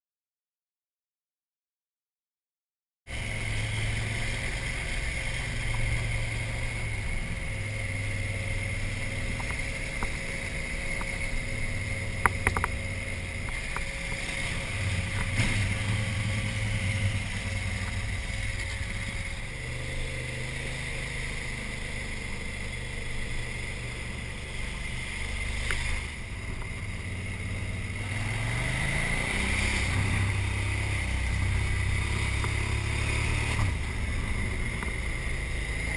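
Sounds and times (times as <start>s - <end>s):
motorcycle engine running: 3.1s - 35.9s
steady high whine: 3.1s - 35.9s
sharp clicks: 12.2s - 12.8s.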